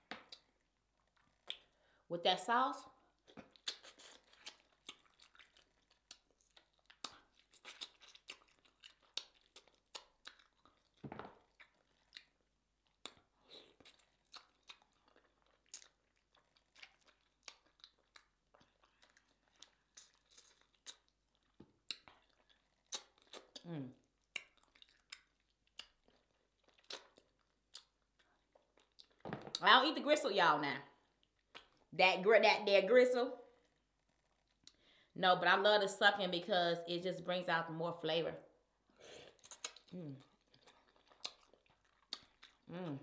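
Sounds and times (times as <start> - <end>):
person chewing wetly: 0.1 - 2.0, 3.1 - 29.6, 31.1 - 31.9, 39.2 - 43.0.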